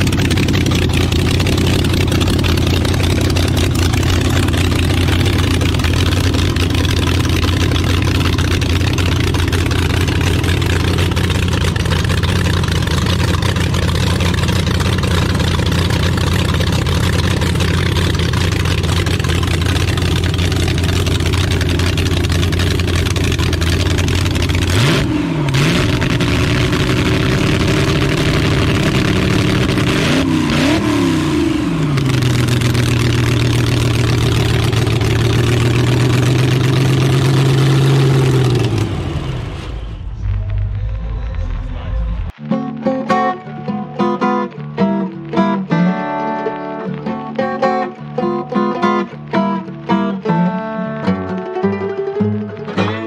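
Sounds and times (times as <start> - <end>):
engine idling and revving: 0.0 - 42.4.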